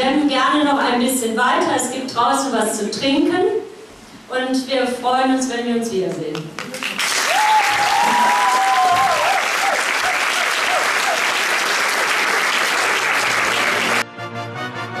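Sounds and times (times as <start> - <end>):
audience applauding: 6.6 - 14.0
music: 13.5 - 15.0.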